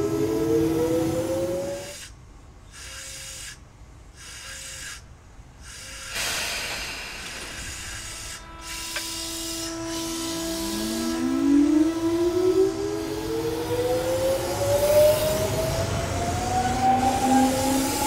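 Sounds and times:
air hissing: 5.6 - 11.2
electric motor whine: 7.4 - 18.0.

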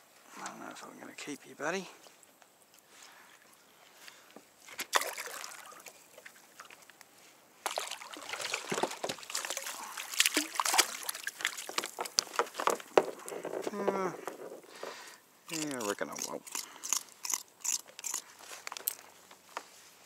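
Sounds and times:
water splashing beside kayak: 4.7 - 6.8, 7.6 - 13.3.

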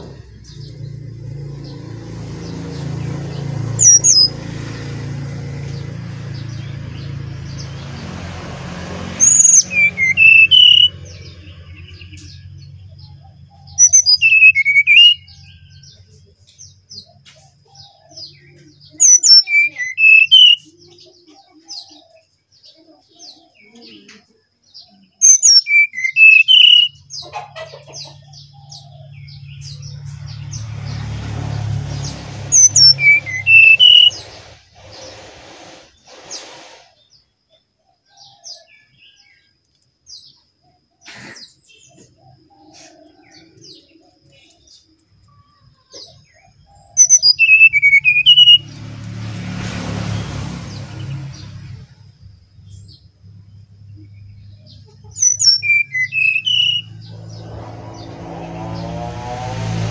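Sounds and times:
bird singing whistled phrases: 9.2 - 11.3, 13.7 - 15.8, 18.8 - 21.0, 25.2 - 27.1, 32.6 - 35.1, 47.0 - 48.8, 55.2 - 57.3.

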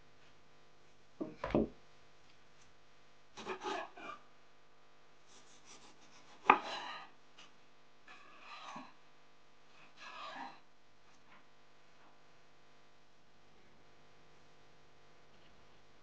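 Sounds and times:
dull thump: 1.2 - 1.8.

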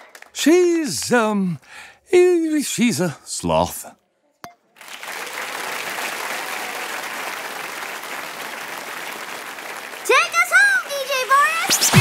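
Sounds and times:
audience applause: 4.8 - 11.8.

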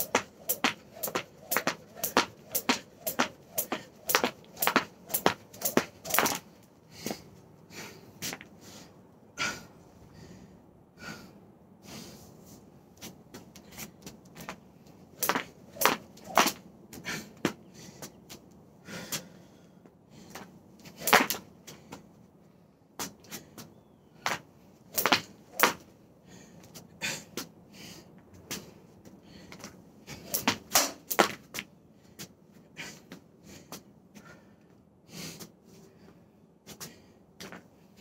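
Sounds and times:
jump rope slapping wooden boards: 0.0 - 6.4, 15.2 - 16.6, 21.1 - 21.4, 25.0 - 25.8, 30.3 - 31.4.

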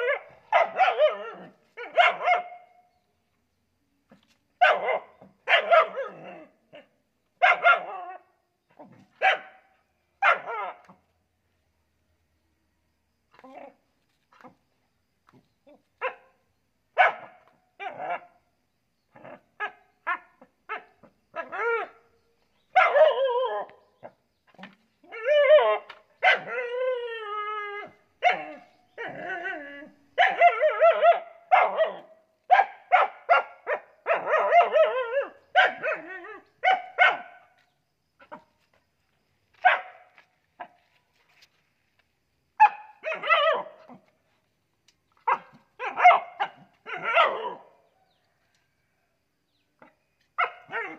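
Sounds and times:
dog barking: 0.0 - 2.8, 4.6 - 6.4, 7.4 - 8.2, 9.2 - 10.9, 17.0 - 18.3, 22.8 - 23.2, 26.2 - 26.5, 28.2 - 28.6, 30.2 - 34.9, 35.6 - 37.4, 39.6 - 40.7, 42.6 - 43.9, 45.2 - 47.7, 50.4 - 50.9.

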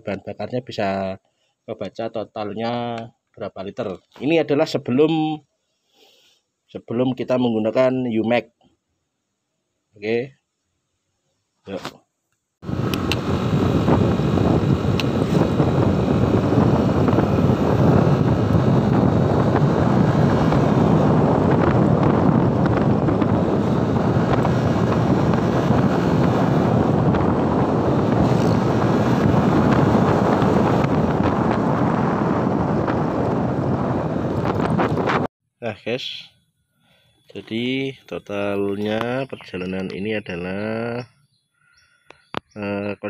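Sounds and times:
scooter riding noise: 12.6 - 35.3
wind buffeting microphone: 12.6 - 35.3.

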